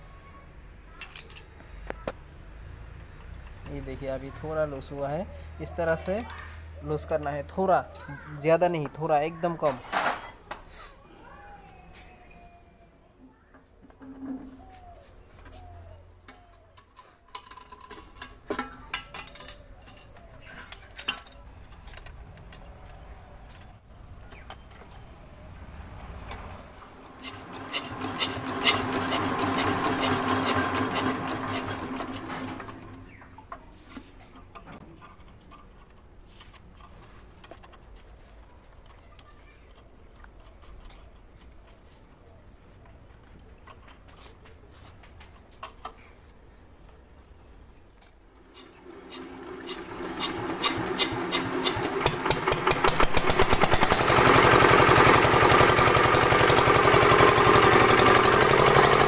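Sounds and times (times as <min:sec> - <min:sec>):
clicks and knocks of handling: 0:33.0 - 0:42.0
diesel engine clattering: 0:49.1 - 0:59.0.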